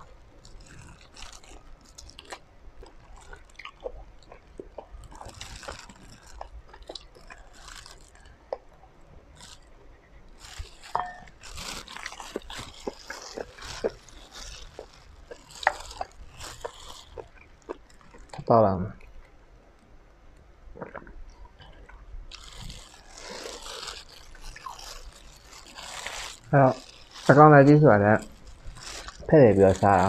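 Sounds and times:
person chewing with wet mouth clicks: 0:00.0 - 0:08.8, 0:10.6 - 0:19.3.

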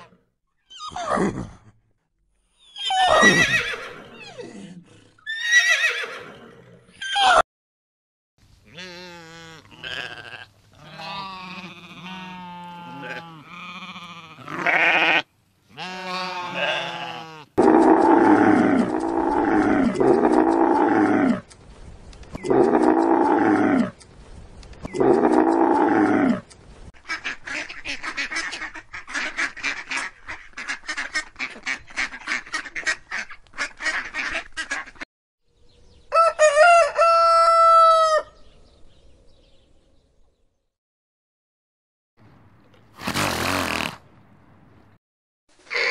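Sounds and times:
lamb bleating: 0:08.7 - 0:17.5
rooster crowing: 0:36.1 - 0:38.4.

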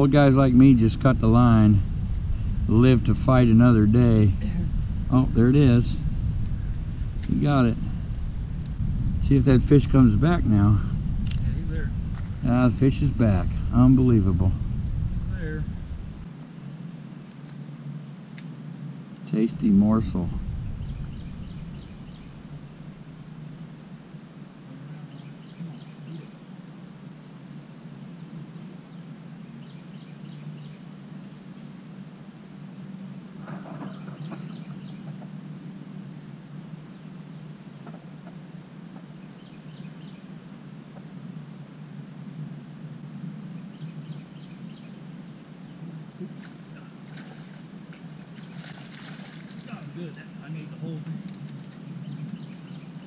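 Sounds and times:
outdoor background rumble: 0:00.0 - 0:53.0
bird chirping: 0:04.6 - 0:08.8, 0:10.9 - 0:16.7, 0:19.7 - 0:24.2, 0:25.0 - 0:27.1, 0:33.7 - 0:35.6, 0:36.2 - 0:40.8, 0:51.8 - 0:53.0
faint bird chirps: 0:20.4 - 0:27.2, 0:33.4 - 0:40.8
light water splashing: 0:46.2 - 0:50.4.

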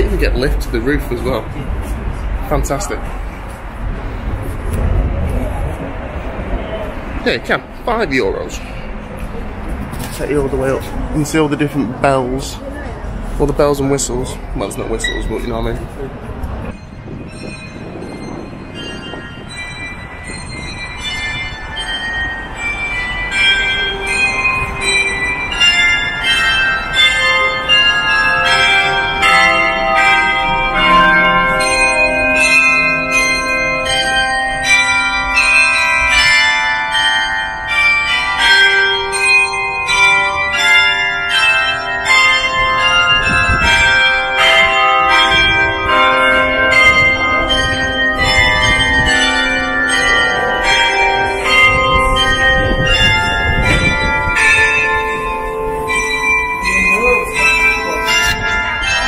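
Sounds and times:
low rumble: 0:00.0 - 0:11.2
church bells ringing: 0:00.0 - 0:59.0.

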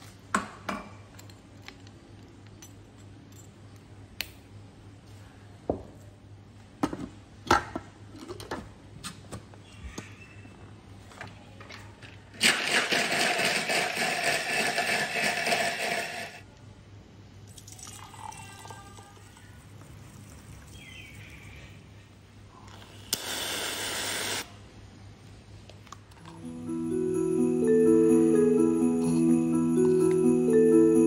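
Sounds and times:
blender running: 0:12.4 - 0:16.4, 0:23.1 - 0:24.4
drink pouring into a glass: 0:17.5 - 0:18.8
whipped cream spray hiss: 0:23.1 - 0:24.5.

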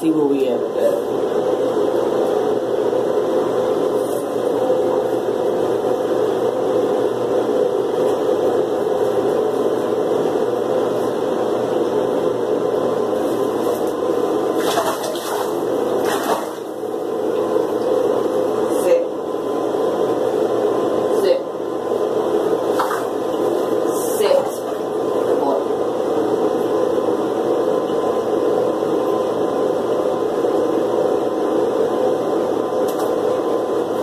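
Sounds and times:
clatters or splashes: 0:14.6 - 0:16.7.

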